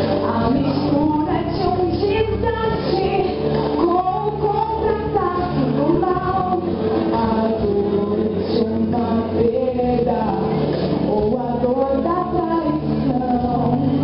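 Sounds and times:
recorded backing track: 0:00.0 - 0:14.0
woman singing into microphone: 0:00.0 - 0:14.0.

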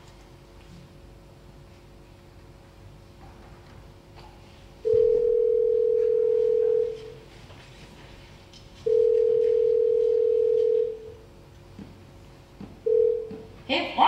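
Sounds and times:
telephone ringback tone: 0:04.8 - 0:07.1, 0:08.9 - 0:11.1, 0:12.9 - 0:13.4.

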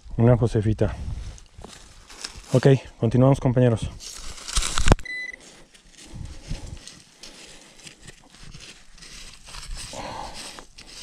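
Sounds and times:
soil clods crumbling: 0:01.3 - 0:02.8, 0:04.0 - 0:11.0
digging tool scraping soil: 0:07.8 - 0:11.0.

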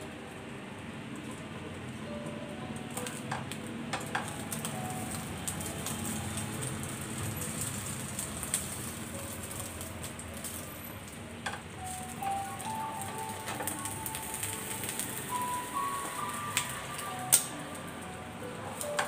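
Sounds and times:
omelette sizzling in a pan: 0:04.1 - 0:19.0.

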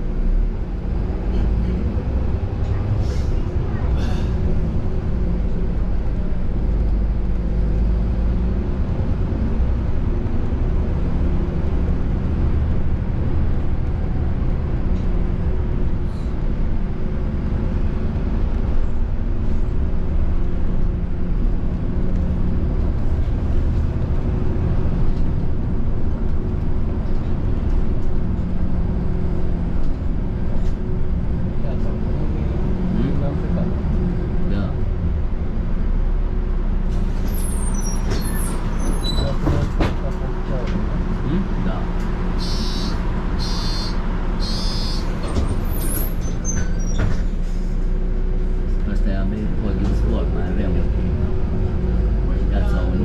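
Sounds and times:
bus engine and road rumble: 0:00.0 - 0:53.0.

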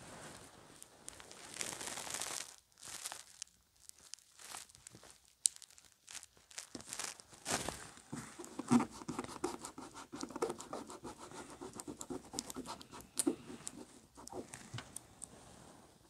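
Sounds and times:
small clicks and crinkles: 0:00.3 - 0:08.8
scratchy rubbing on paper: 0:08.1 - 0:14.7.

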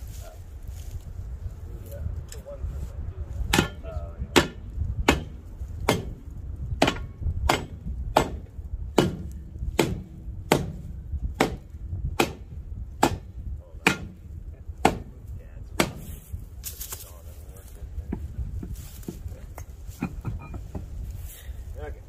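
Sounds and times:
steel bar striking hard ground: 0:03.4 - 0:15.1, 0:15.8 - 0:17.0, 0:18.1 - 0:21.0.

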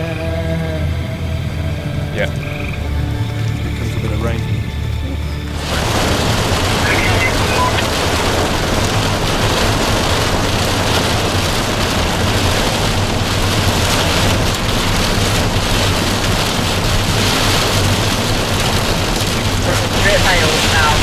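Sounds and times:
low hum: 0:00.0 - 0:21.0
heavy rain on car roof: 0:05.4 - 0:21.0.

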